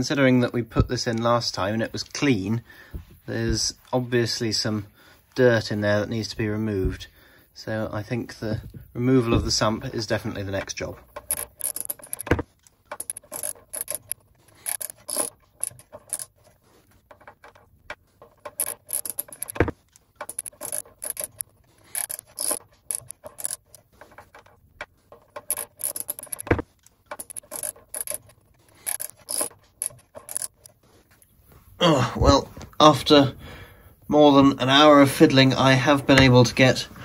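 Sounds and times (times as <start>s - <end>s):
socket ratchet clicking: 11.0s - 16.5s, 18.2s - 30.8s.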